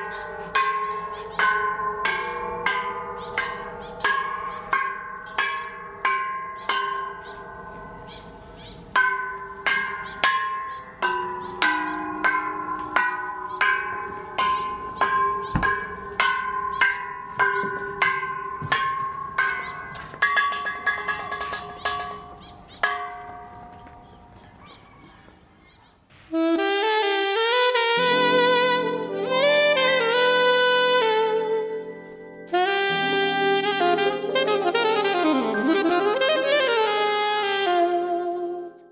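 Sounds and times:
metal bells struck ringing: 0.0s - 24.3s.

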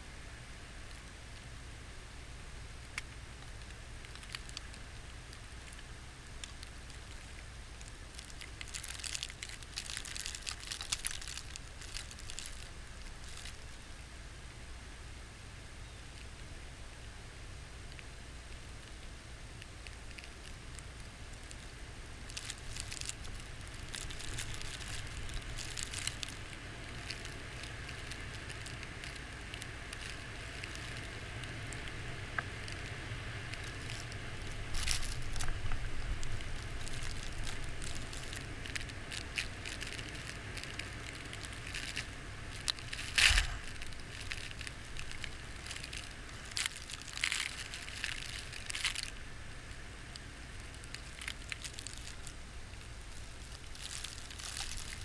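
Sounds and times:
snow ticking on camera: 20.0s - 55.0s.

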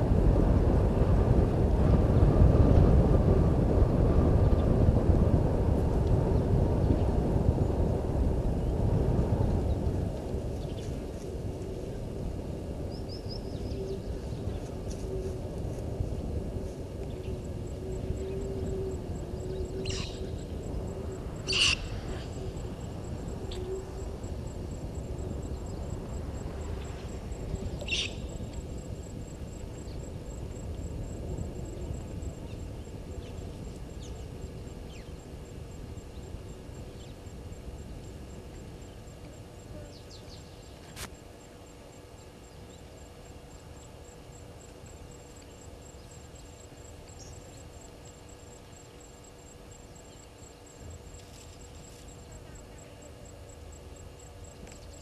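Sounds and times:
faint electrical hum: 0.0s - 55.0s
low rumbling hiss: 0.0s - 55.0s
short bird calls: 21.5s - 21.9s.

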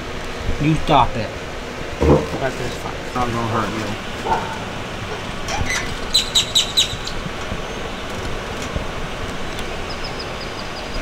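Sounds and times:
outdoor background noise: 0.0s - 11.0s
bird chirping: 5.6s - 7.9s, 9.8s - 11.0s.

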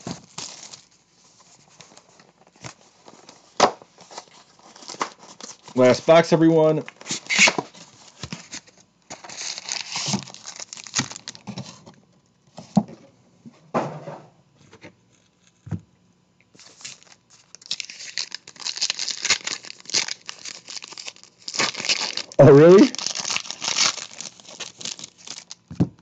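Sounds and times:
plastic wrapping tearing and crinkling: 0.0s - 1.0s, 1.7s - 11.9s, 16.6s - 25.7s.

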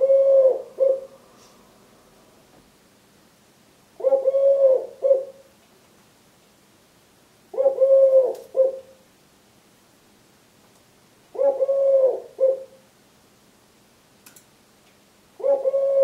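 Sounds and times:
dove cooing: 0.0s - 1.3s, 4.0s - 5.5s, 7.5s - 9.0s, 11.3s - 12.8s, 15.4s - 16.0s.

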